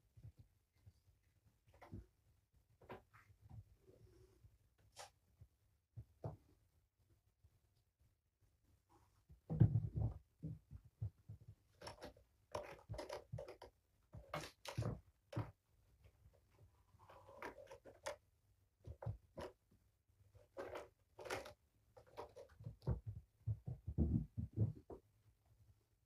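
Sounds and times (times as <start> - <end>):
kittens scratching and rustling: 11.1 - 18.2, 18.8 - 23.9.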